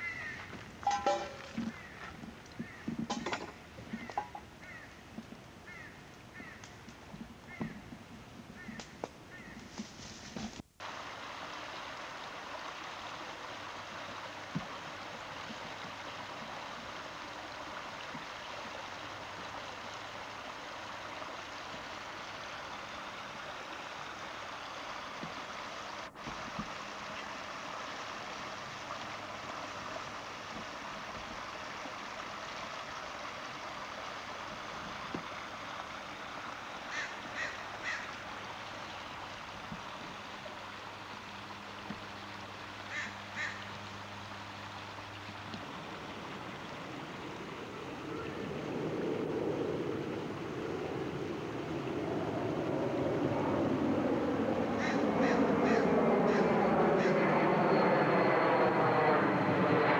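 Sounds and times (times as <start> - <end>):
bird calling: 0.0 - 3.2, 3.8 - 5.0, 5.6 - 6.9, 8.6 - 9.6, 36.9 - 38.2, 42.9 - 43.7, 54.8 - 57.3
flowing water rushing: 0.0 - 8.7, 10.8 - 57.2.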